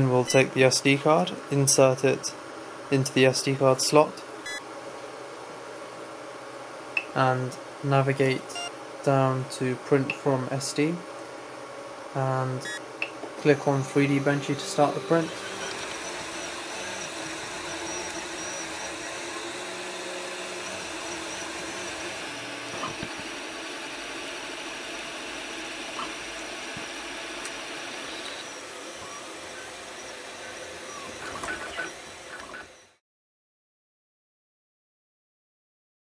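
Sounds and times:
cooling fans hissing: 0:00.0 - 0:32.7
stepper motors whining: 0:13.4 - 0:33.0.

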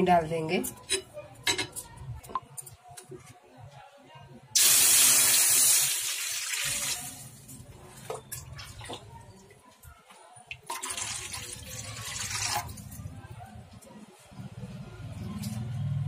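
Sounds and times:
water pouring into metal pot: 0:04.6 - 0:07.4, 0:10.6 - 0:13.0.

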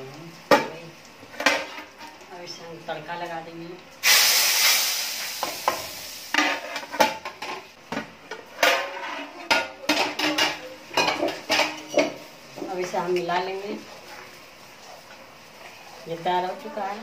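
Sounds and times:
hot oil sizzling: 0:00.0 - 0:17.0
metal lid clanking and scraping: 0:08.6 - 0:12.2.

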